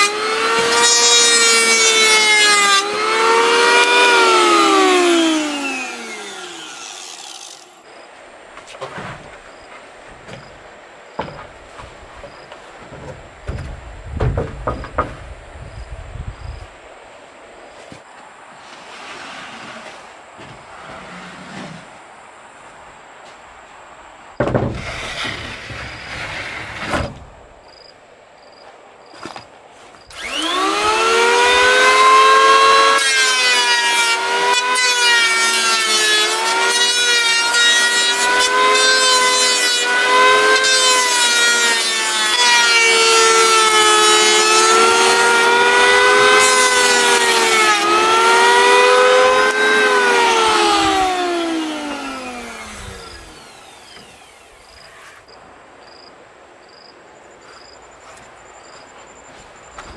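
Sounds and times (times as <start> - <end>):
electric planer shaving wood: 0.0 - 7.8, 30.1 - 55.2
wooden boards knocking: 11.2 - 15.3, 24.4 - 24.9.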